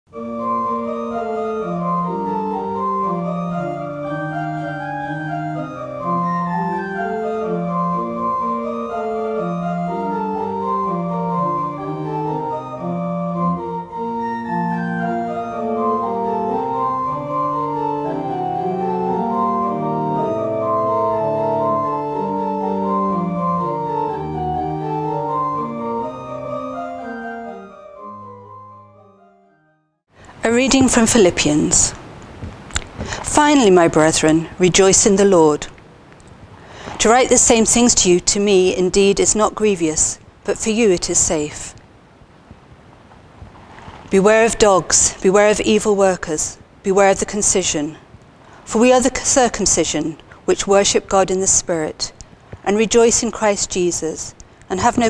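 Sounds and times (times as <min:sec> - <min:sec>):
organ chords: 0:00.1 - 0:29.9.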